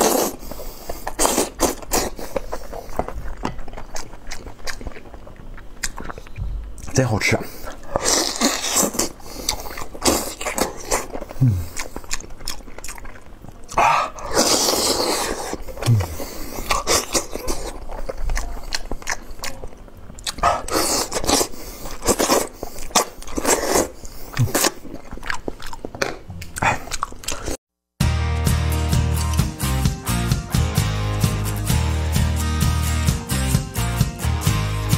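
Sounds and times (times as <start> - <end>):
close-miked eating and chewing: 0.0 - 27.6
background music: 28.0 - 34.9.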